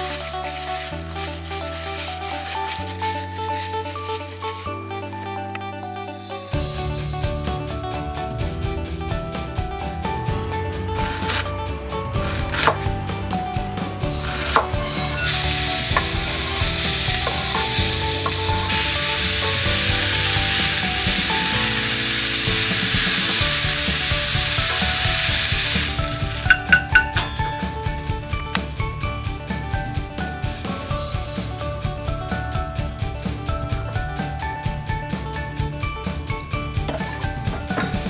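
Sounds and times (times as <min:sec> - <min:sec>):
wooden spatula stirring: 0:00.0 - 0:04.8, 0:14.2 - 0:28.8
onion sizzling in a skillet: 0:00.0 - 0:04.9, 0:14.2 - 0:29.0
soft background music: 0:00.0 - 0:38.0
knife on wooden cutting board: 0:11.0 - 0:11.4, 0:12.2 - 0:12.8, 0:14.2 - 0:16.1.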